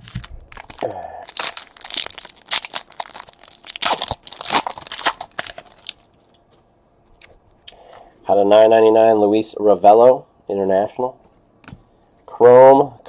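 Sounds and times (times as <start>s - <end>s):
wrapper tearing and crinkling: 0.0s - 6.1s.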